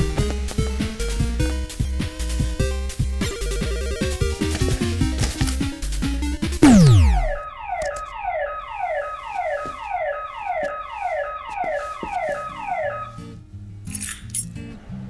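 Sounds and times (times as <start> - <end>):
falling pitch sweep: 6.6 - 8.9
alarm-like falling tones: 6.6 - 13.2.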